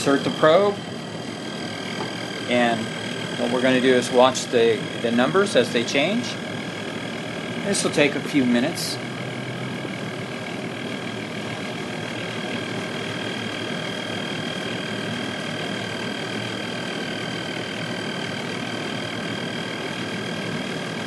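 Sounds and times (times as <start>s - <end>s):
furnace running with high whine: 0.0s - 21.0s
sampling pump running: 0.0s - 21.0s.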